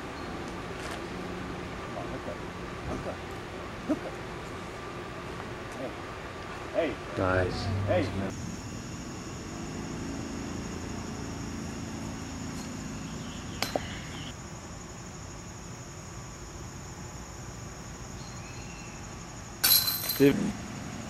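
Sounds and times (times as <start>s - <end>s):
insects chirring: 1.1s - 21.0s
disc hitting metal chains: 19.6s - 20.4s.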